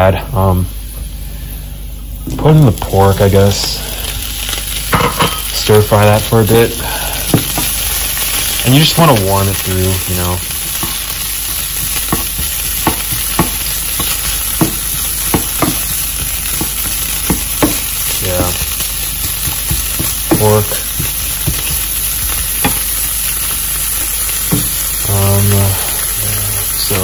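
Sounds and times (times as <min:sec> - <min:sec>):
meat sizzling in oil: 0:00.7 - 0:27.0
spatula tapping and scraping pan: 0:07.3 - 0:08.5, 0:10.7 - 0:23.0.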